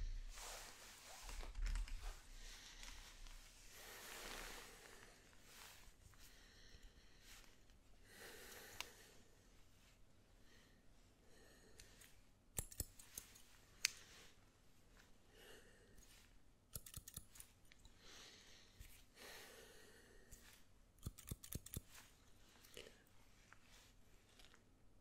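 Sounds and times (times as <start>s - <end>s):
soft comb strokes: 0.0s - 10.1s, 20.3s - 24.6s
scissors snipping: 12.5s - 14.0s, 16.7s - 17.9s, 21.0s - 22.0s.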